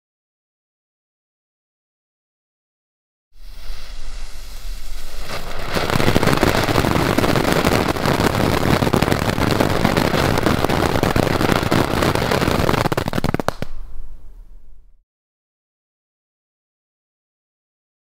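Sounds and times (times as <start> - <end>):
firework fountain hissing and crackling: 3.4 - 13.9.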